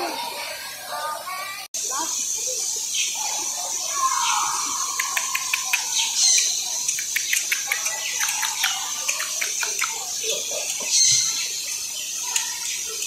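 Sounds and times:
birds chirping and calling: 0.0 - 13.0
steady high hiss: 0.1 - 13.0.

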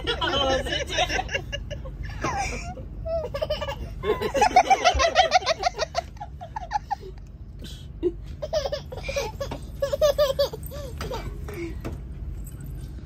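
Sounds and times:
hearty laughter: 0.0 - 7.3
steady low rumble: 0.0 - 13.0.

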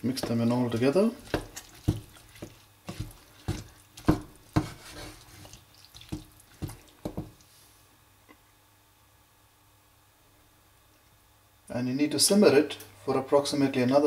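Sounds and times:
wooden spoon stirring thick mixture: 0.0 - 7.6.

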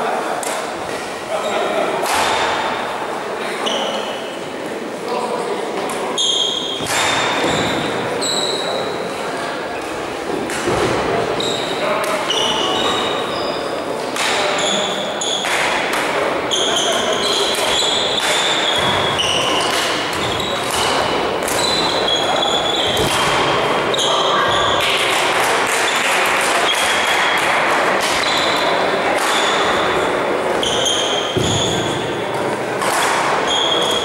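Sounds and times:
shoes squeaking on court floor: 3.6 - 4.4, 6.1 - 9.0, 9.8 - 13.8, 14.4 - 15.6, 16.4 - 25.1, 25.7 - 34.0
racket striking shuttlecock: 6.8 - 7.6, 17.5 - 22.0, 22.9 - 23.6.

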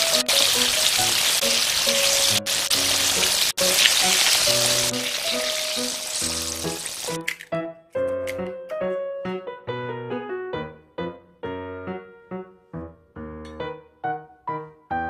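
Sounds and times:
food deep-frying in hot oil: 0.0 - 7.3.

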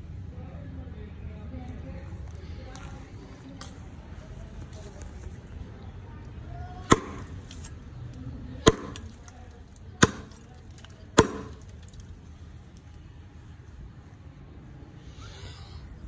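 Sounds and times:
cleaver chopping wood: 6.8 - 7.4, 8.6 - 9.2, 10.0 - 10.5, 11.2 - 11.7.

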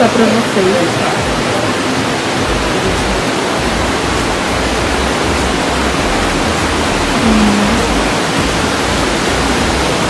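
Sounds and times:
loud rushing noise: 1.0 - 10.0
low rumble: 2.4 - 9.8.

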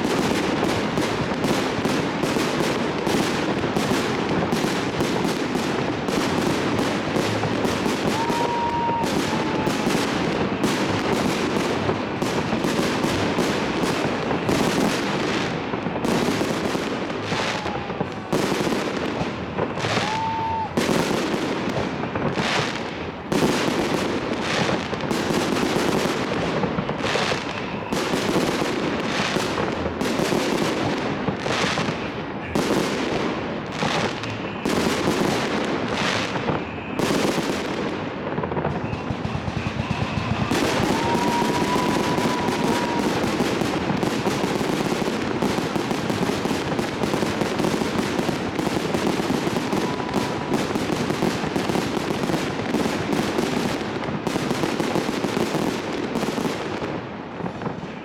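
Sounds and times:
firework crackling: 0.0 - 58.0
firework whistle: 6.2 - 21.4, 25.4 - 29.5, 33.8 - 53.7
firework shells bursting: 38.6 - 51.6.

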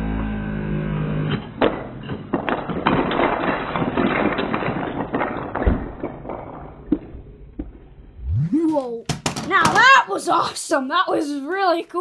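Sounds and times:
wooden blocks clattering on floor: 1.4 - 7.8, 8.7 - 10.0
low thud: 5.2 - 8.6
motorized dart blaster whirring: 8.2 - 8.8.

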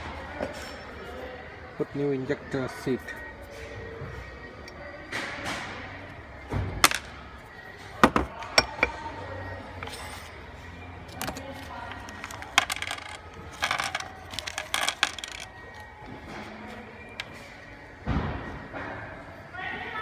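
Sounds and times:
small metal parts clinking: 11.1 - 15.9.

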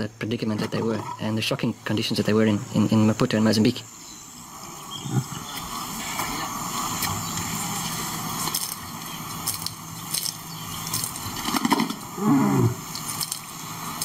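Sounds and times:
background hiss: 0.0 - 14.0
lion calling: 4.7 - 7.7, 11.8 - 13.0.

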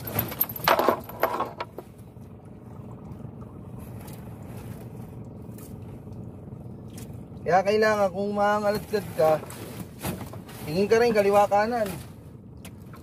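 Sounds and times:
metal chain clattering: 0.0 - 1.8
boat engine hum: 0.0 - 13.0.

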